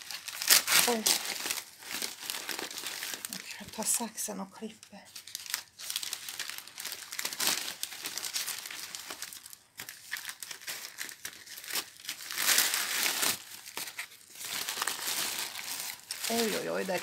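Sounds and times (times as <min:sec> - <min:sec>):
paper crinkling and tearing: 0:00.0 - 0:04.1, 0:05.1 - 0:17.0.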